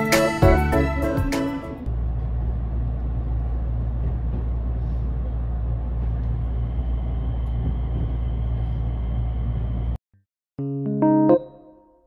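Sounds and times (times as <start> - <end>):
vehicle rumble from inside: 1.8 - 10.0.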